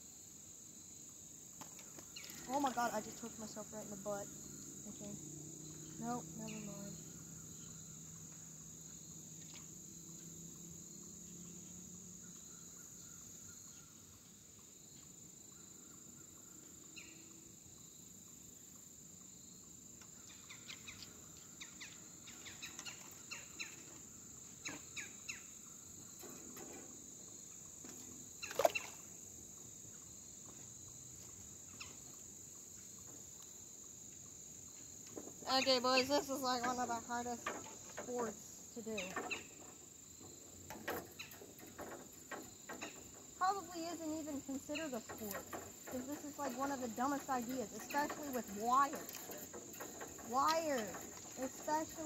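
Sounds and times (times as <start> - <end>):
crickets chirring: 0.0 - 52.0
light clicks and rustles: 1.5 - 4.0, 25.9 - 29.1, 34.8 - 52.0.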